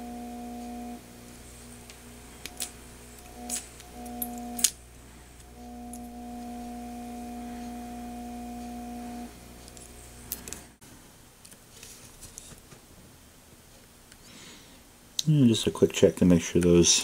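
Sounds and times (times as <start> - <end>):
deeper hum: 0.0 - 10.8
vacuum pump humming: 0.0 - 10.8.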